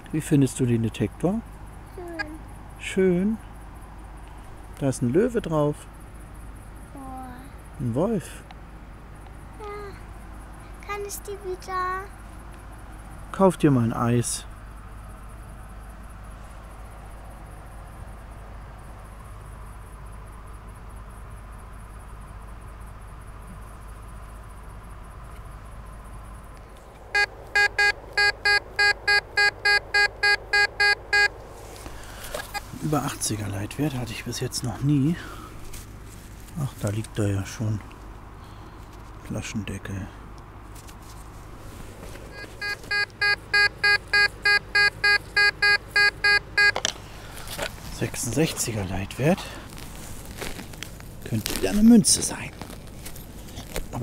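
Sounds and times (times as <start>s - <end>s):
faint cricket chirping: 0.0s - 54.0s
metal detector beeps: 27.2s - 31.3s, 42.3s - 46.9s.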